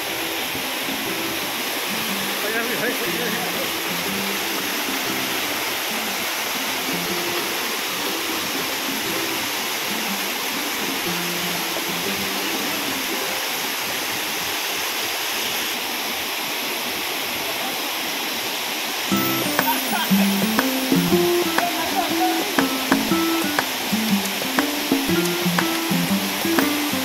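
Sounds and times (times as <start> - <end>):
waterfall rushing: 0.0 - 27.0.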